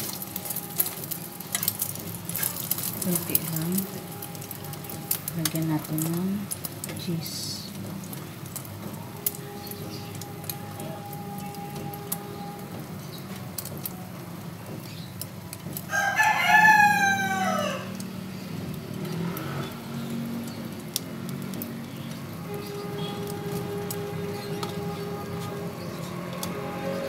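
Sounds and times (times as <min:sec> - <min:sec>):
rooster crowing: 0:15.9 - 0:18.0.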